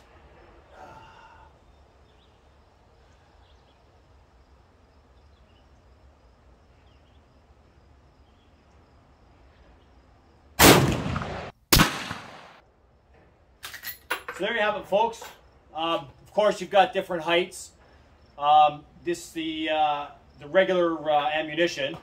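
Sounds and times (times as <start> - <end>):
rifle shots echoing: 10.6 - 12.6.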